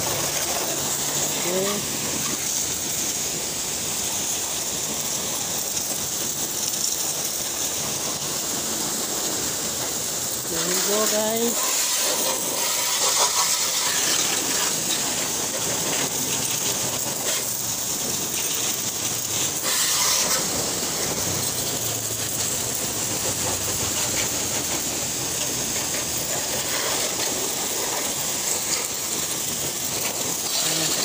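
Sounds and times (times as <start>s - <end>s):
pressure washer spraying water: 0.0s - 31.0s.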